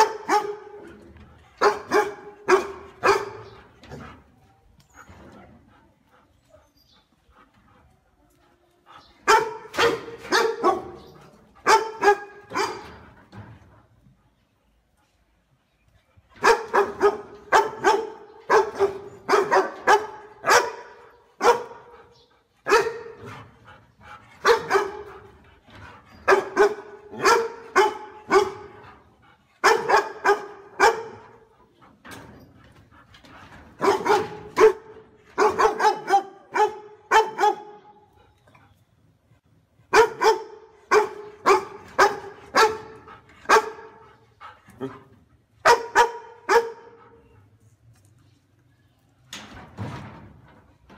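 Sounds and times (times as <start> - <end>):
large dog barking: 0.0 - 4.0, 9.2 - 13.0, 16.4 - 23.6, 24.4 - 25.4, 26.2 - 29.0, 29.6 - 31.5, 33.7 - 38.0, 39.9 - 44.1, 44.7 - 47.1.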